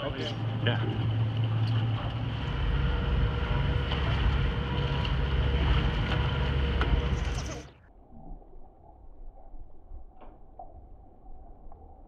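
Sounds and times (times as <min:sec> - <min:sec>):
boat engine running under load: 0:00.0 - 0:07.8.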